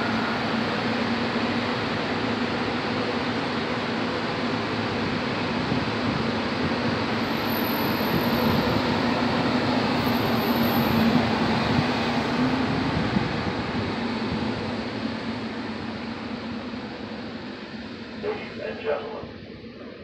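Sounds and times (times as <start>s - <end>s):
electric train passing: 0.0s - 20.0s.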